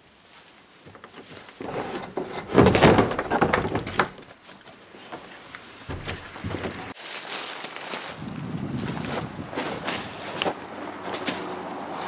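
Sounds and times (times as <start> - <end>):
kayak hull scraping and knocking: 0.9 - 7.0.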